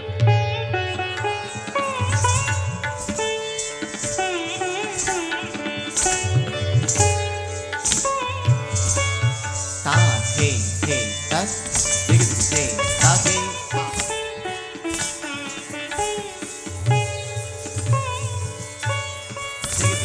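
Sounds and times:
tabla playing: 0.0 - 20.0
high jingling: 6.8 - 14.1.

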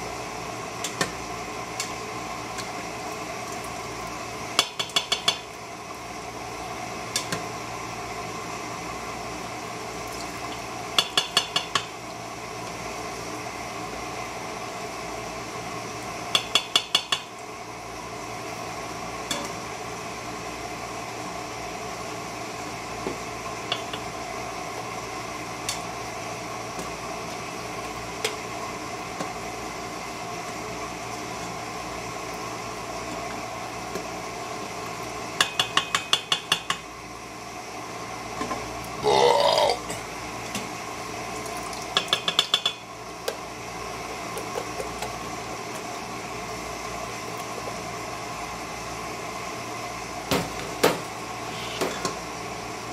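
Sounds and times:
steady hum: 38.8 - 41.1.

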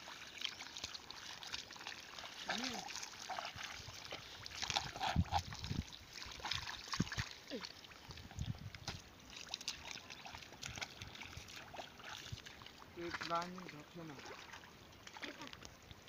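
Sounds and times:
mud squelching and water splashing: 0.0 - 16.0.

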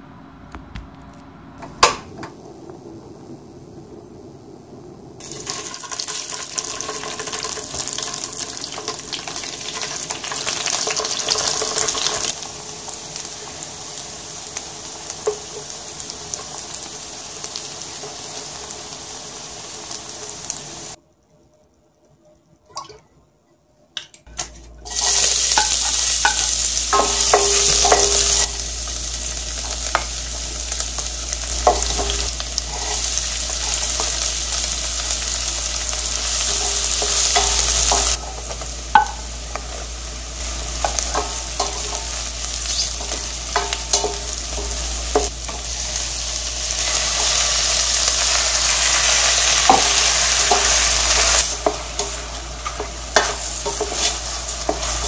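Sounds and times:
food sizzling in oil: 5.2 - 21.0, 24.4 - 55.0
spatula scraping a wok: 31.5 - 46.0, 46.7 - 55.0.

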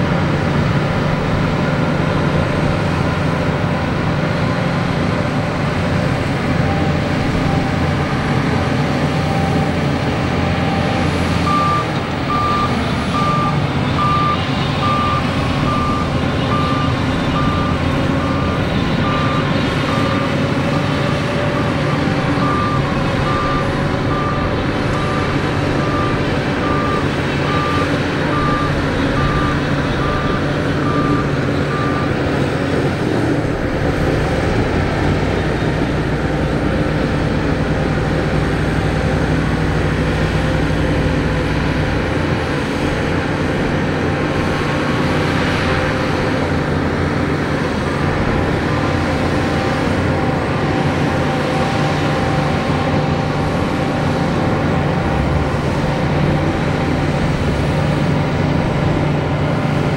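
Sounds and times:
bulldozer diesel engines under load: 0.0 - 59.9
reversing alarm beeping: 10.4 - 32.4.

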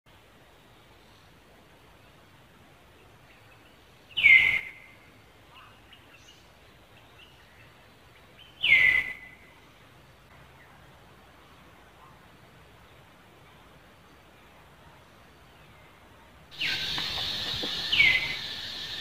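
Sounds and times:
shrill animal call: 16.6 - 19.0.

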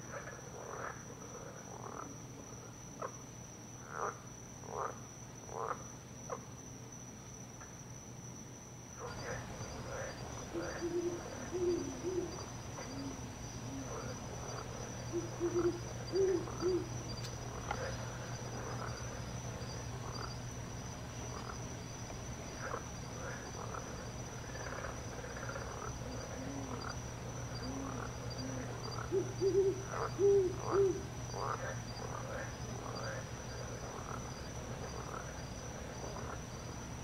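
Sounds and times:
high-pitched insect trill: 0.0 - 37.0
owl hooting: 9.0 - 18.8, 27.6 - 31.7.

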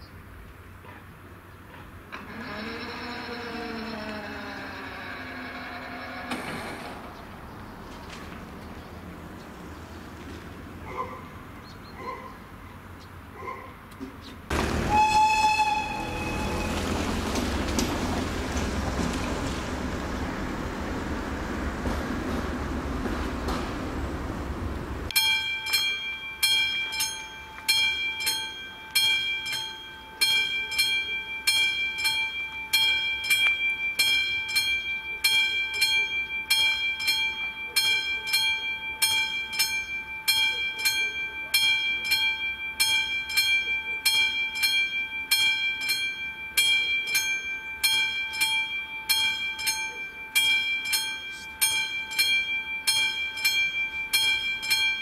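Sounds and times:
level crossing warning bell: 14.5 - 55.0.

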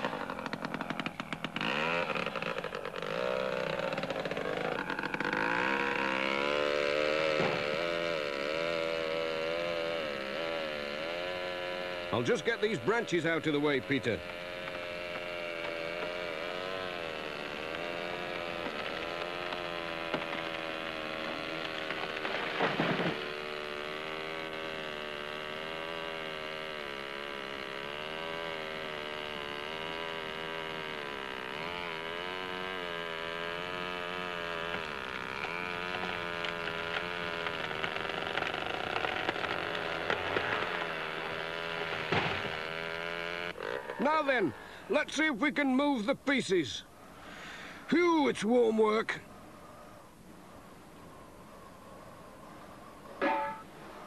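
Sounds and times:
chainsaw cutting through log: 0.0 - 45.0, 47.2 - 47.9, 53.2 - 54.0.

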